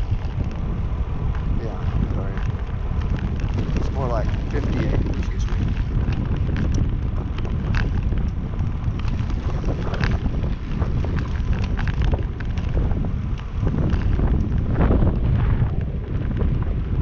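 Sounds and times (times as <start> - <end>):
wind buffeting microphone: 0.0 - 17.0
small clicks: 1.2 - 14.6.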